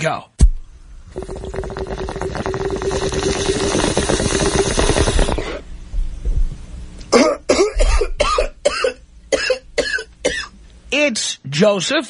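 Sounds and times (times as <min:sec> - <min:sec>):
water bubbling through a bong: 0:00.8 - 0:05.7.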